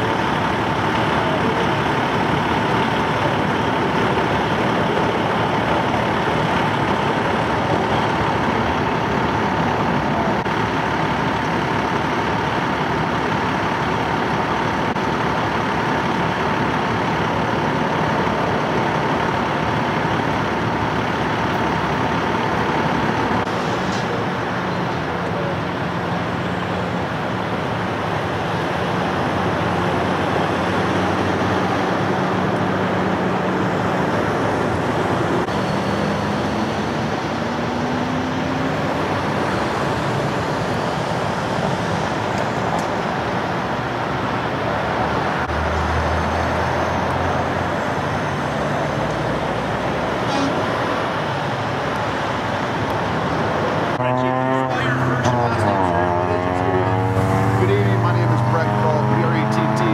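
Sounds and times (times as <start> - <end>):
heavy trucks idling: 0.0 - 59.9
humming engine: 0.0 - 59.9
steady whine: 47.0 - 59.9.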